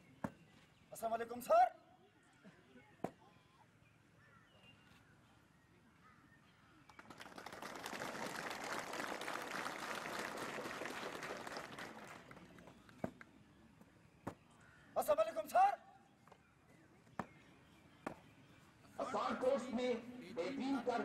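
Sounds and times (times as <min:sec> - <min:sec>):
spectators clapping: 0:06.9 - 0:12.7.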